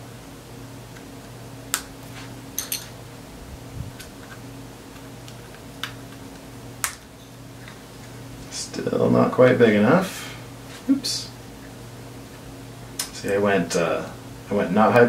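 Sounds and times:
steady low hum: 0.0 - 15.0
plastic pieces snapping together: 6.8 - 7.0.

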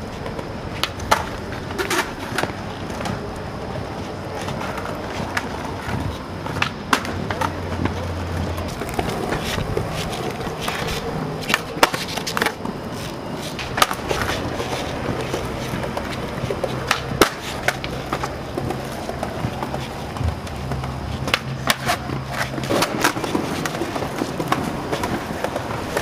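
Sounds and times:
skateboard wheels rolling on concrete: 0.0 - 26.0
skateboards clacking on ground: 0.0 - 26.0.

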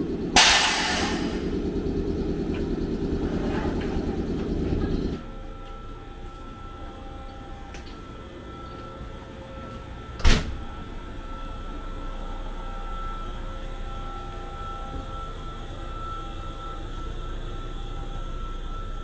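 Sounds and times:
train equipment humming: 0.0 - 19.0
sharp clunk: 0.4 - 1.4.

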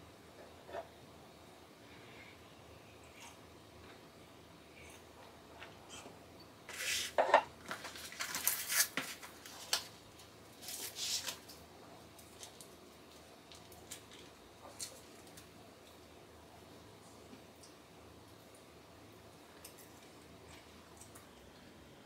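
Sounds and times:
plastic and paper wrapping crinkling: 6.7 - 11.6, 12.2 - 15.6.

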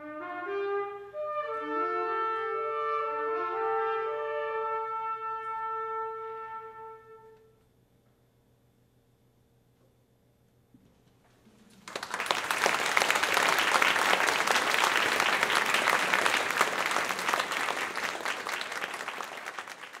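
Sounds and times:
audience applause: 11.7 - 20.0.

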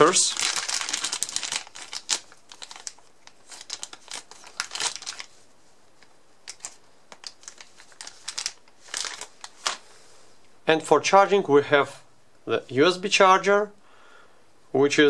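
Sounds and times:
plastic bags crinkling: 0.0 - 5.4, 6.4 - 9.9.

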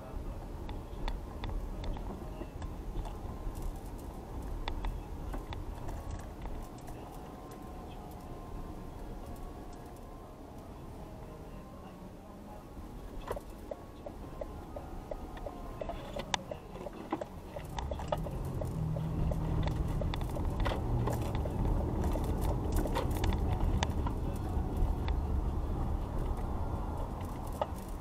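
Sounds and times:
car engine and tyres rumbling: 0.0 - 28.0
turn signal ticking: 0.3 - 11.4, 13.0 - 28.0
small clicks and rattles: 16.2 - 25.2.

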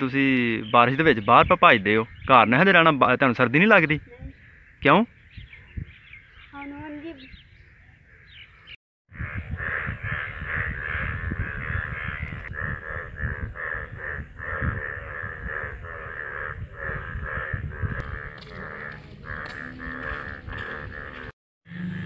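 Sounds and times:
crows cawing: 9.2 - 22.0.

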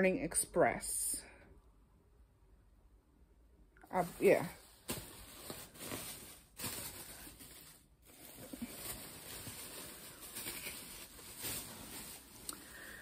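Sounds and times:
faint rustling and handling: 3.9 - 13.0.

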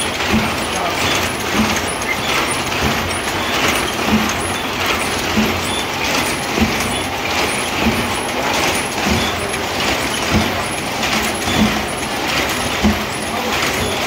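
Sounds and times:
loom knocking: 0.0 - 14.0
weaving loom clattering: 0.0 - 14.0.

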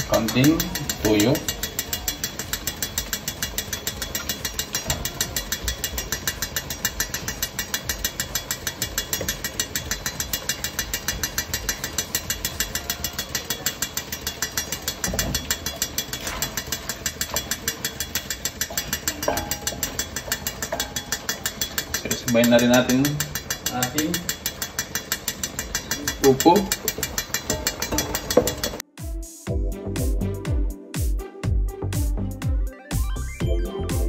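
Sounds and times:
fast mechanical ticking: 0.0 - 28.8
wooden spoon knocking in a wok: 1.8 - 28.8.

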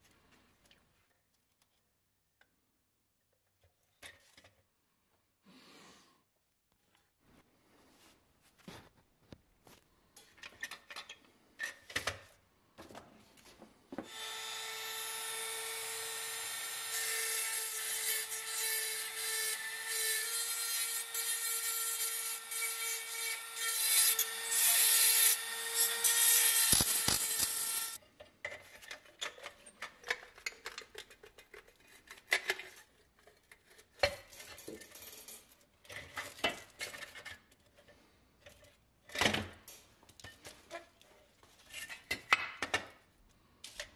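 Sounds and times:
bit grinding metal: 16.3 - 28.0
rotary tool whining: 21.0 - 28.0
metal parts clicking and scraping: 28.7 - 37.3.

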